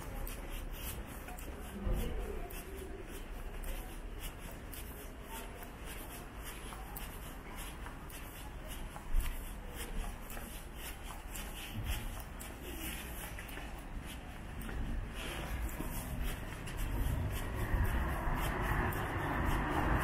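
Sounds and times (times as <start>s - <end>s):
footsteps on paved sidewalk: 0.0s - 20.0s
low street rumble: 0.0s - 20.0s.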